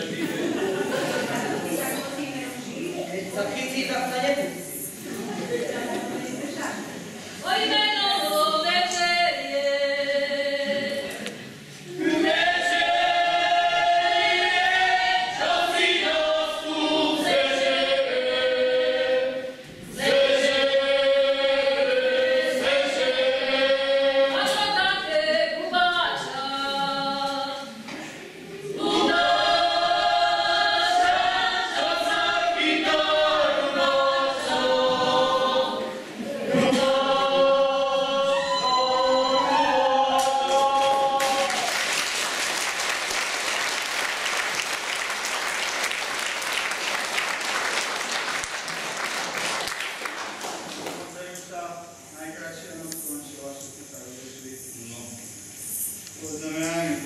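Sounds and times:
group singing in chorus: 0.0 - 2.2, 5.0 - 51.0.

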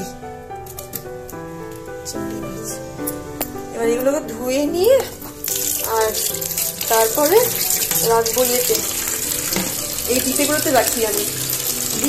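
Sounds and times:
tap running into steel sink: 5.5 - 12.0.

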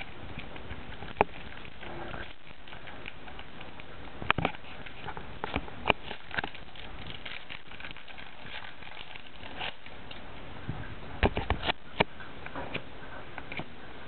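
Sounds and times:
foil wrapper crinkling and tearing: 0.0 - 10.3.

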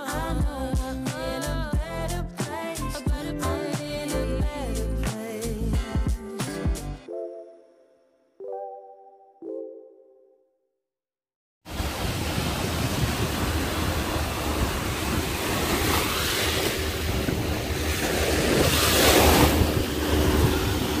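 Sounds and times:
surf washing over sand: 11.7 - 21.0
wind on microphone: 11.7 - 21.0.

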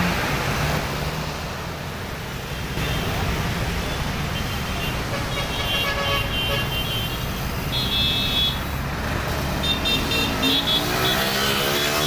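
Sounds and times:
traffic: 0.0 - 12.0
engine revving: 8.8 - 12.0.

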